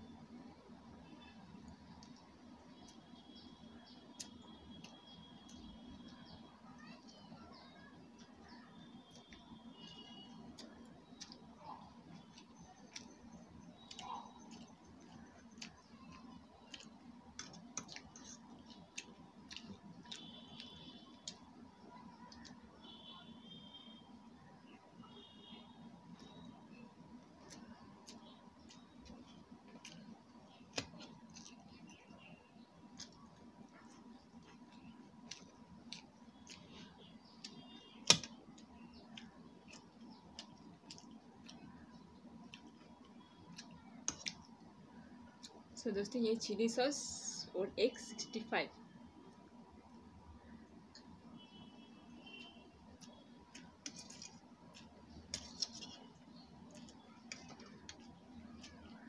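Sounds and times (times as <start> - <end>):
chewing: 8.2 - 21.5, 27.4 - 32.2, 32.8 - 44.6.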